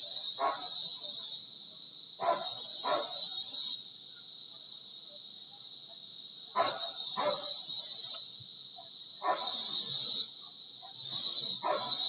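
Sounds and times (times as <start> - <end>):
cicadas droning: 0.0 - 12.0
dog barking: 0.4 - 0.8, 2.2 - 3.2, 6.6 - 7.6, 9.2 - 9.6, 11.6 - 12.0.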